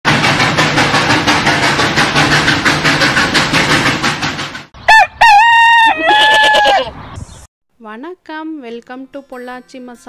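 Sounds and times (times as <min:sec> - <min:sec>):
steam train chugging: 0:00.1 - 0:04.8.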